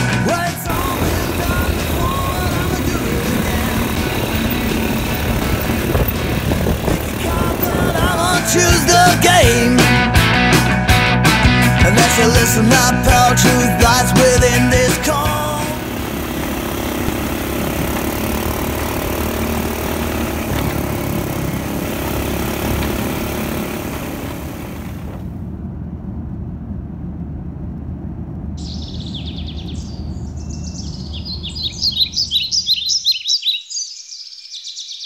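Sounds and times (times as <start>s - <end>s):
vehicle engine and road noise: 0.0s - 33.1s
bird chirping: 28.6s - 35.0s.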